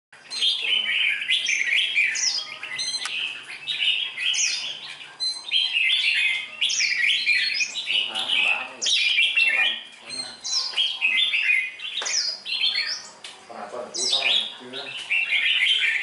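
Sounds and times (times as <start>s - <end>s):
birds chirping and whistling: 0.2s - 16.0s.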